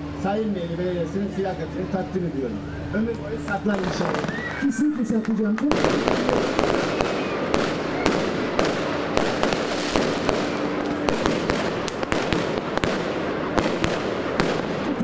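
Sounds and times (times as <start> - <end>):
fireworks crackling: 3.2 - 15.0
fireworks bangs and cracks: 3.5 - 4.4, 5.6 - 15.0.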